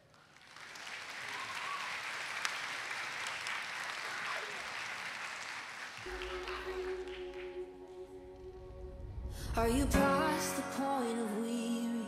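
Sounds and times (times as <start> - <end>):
audience applauding: 0.0 - 7.7.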